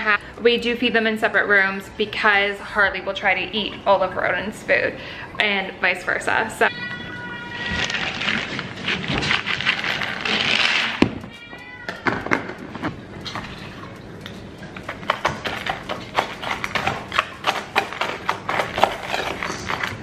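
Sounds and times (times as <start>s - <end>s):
cat meowing: 6.7s - 8.2s, 11.3s - 12.1s.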